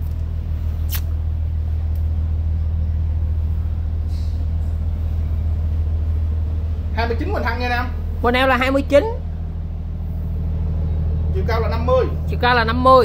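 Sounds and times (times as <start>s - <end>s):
steady low rumble: 0.0s - 13.0s
short hiss: 0.9s - 1.1s.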